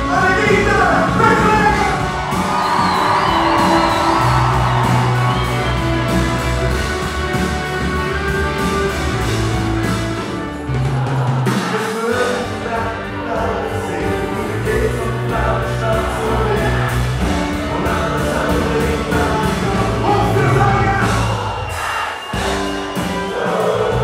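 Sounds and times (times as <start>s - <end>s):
electric guitars: 0.0s - 11.2s
bass line: 0.0s - 11.6s, 12.2s - 21.8s
drum kit: 0.0s - 24.0s.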